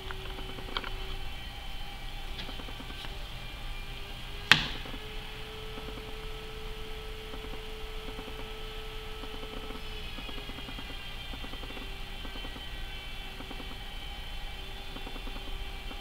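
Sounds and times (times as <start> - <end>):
sharp click: 4.5 - 5.0.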